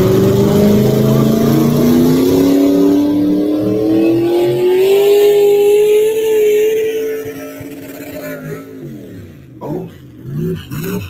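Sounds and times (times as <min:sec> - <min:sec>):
tractor engine at high revs: 0:00.0 - 0:11.0.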